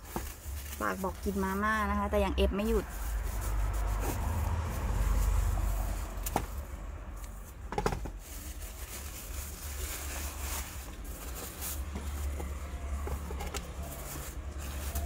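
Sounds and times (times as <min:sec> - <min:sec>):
plastic packaging clicks and rustling: 0:07.8 - 0:15.0.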